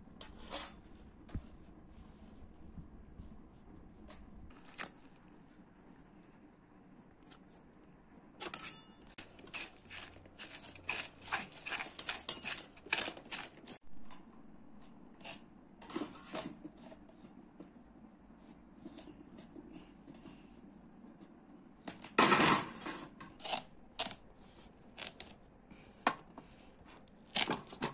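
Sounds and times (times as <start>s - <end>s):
utensil clicks and scrapes: 6.9s - 13.8s, 23.2s - 25.4s.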